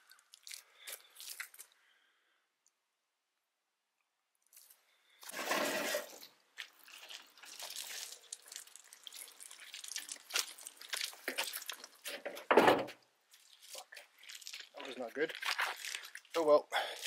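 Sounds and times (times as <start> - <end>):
scraping and crunching on gravel: 0.0 - 1.8, 4.5 - 12.5, 13.3 - 17.0
rushing scrape: 5.2 - 6.2.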